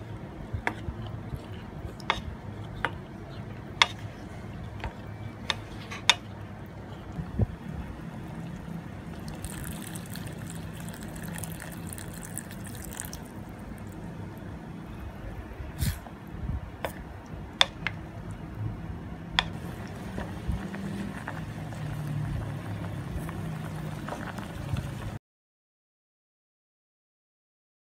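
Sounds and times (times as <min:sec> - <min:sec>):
curry simmering and bubbling: 0:03.3 - 0:14.6, 0:19.5 - 0:25.2
wooden spoon stirring: 0:09.1 - 0:14.0.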